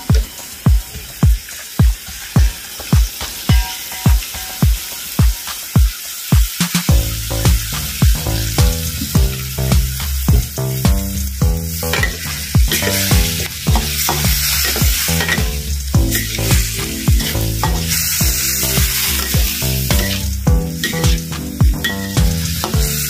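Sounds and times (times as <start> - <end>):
background music with beat: 0.0 - 23.0
meat sizzling in a wok: 0.0 - 23.0
metal spatula scraping: 11.8 - 23.0.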